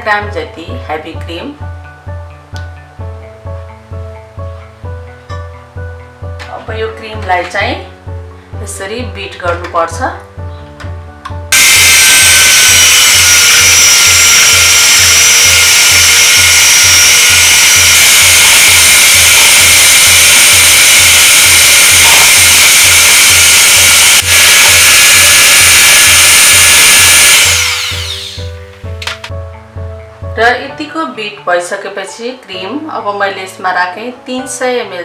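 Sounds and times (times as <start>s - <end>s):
electric hand mixer whirring: 11.5s - 28.7s.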